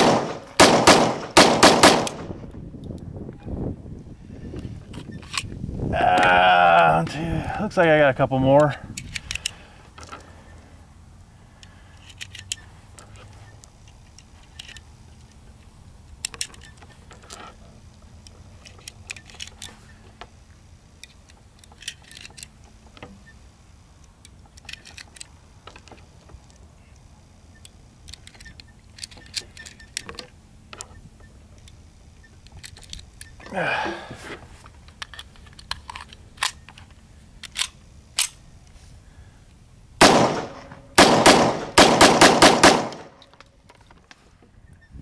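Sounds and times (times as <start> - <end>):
cartridges clicking into magazine: 0.0 - 3.1, 8.9 - 10.3, 13.6 - 15.4, 18.2 - 19.8, 21.0 - 22.6, 24.0 - 30.9, 32.4 - 33.4, 34.8 - 38.5, 40.0 - 44.1.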